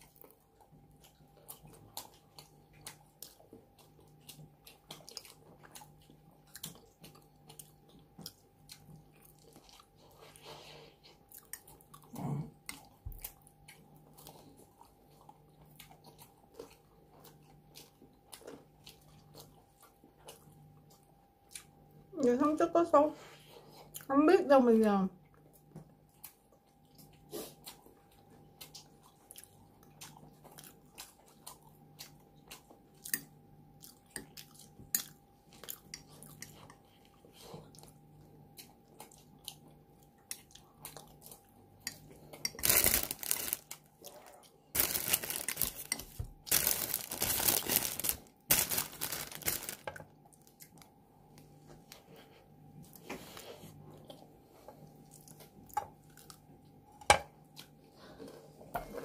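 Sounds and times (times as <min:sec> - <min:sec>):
chewing with wet mouth clicks: 0:00.0 - 0:22.3, 0:23.7 - 0:24.1, 0:25.2 - 0:42.7, 0:49.9 - 0:53.2, 0:53.8 - 0:58.0
crunching of crusty bread: 0:42.5 - 0:50.9.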